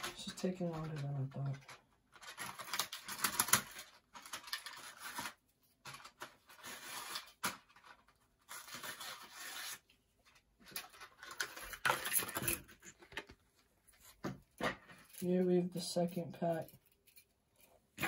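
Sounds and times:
plastic packaging crinkling: 0.0s - 9.8s.

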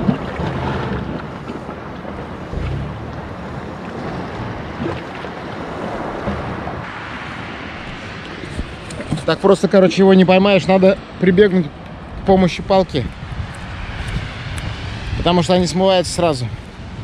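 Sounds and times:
waves washing against rocks: 0.0s - 9.4s
wind on microphone: 0.0s - 9.4s, 12.0s - 17.0s.

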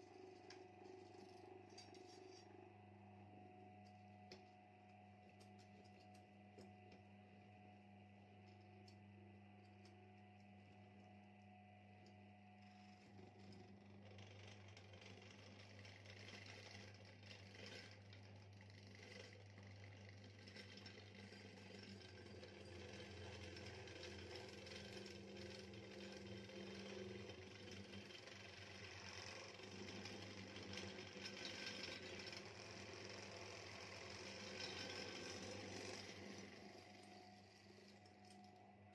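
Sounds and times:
electric drill cutting metal: 25.4s - 37.7s.

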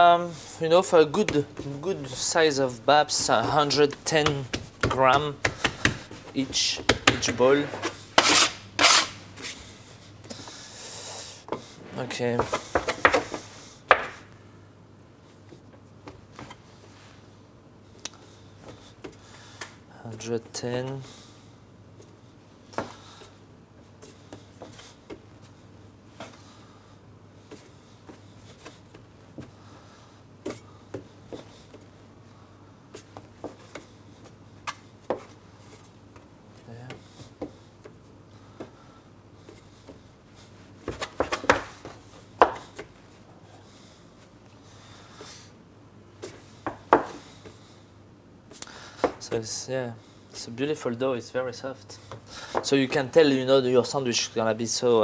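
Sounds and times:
dough scraper scraping: 3.1s - 9.2s
scraper knocking on wooden bench: 4.0s - 6.3s.

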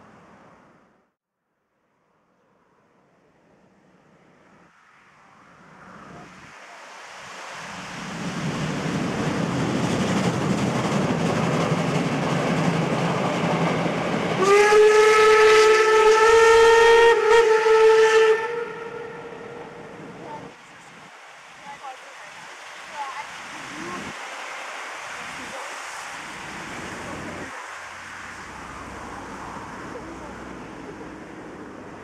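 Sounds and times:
steam locomotive running: 8.1s - 20.5s
long steam whistle: 14.4s - 19.9s.

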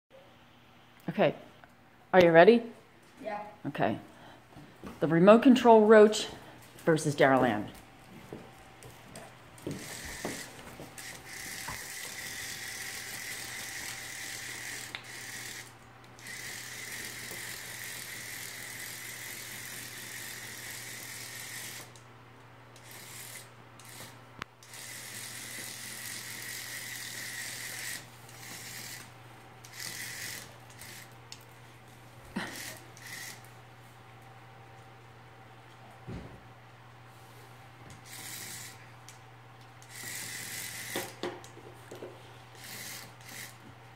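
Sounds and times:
toy motor buzzing and rattling: 9.6s - 22.0s, 22.8s - 31.2s, 32.4s - 33.5s, 38.0s - 38.9s, 39.8s - 41.2s, 42.5s - 43.6s.

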